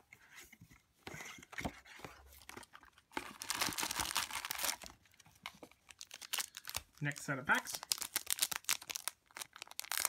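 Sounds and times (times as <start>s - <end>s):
foil packs crinkling: 3.1s - 4.9s, 5.8s - 10.0s.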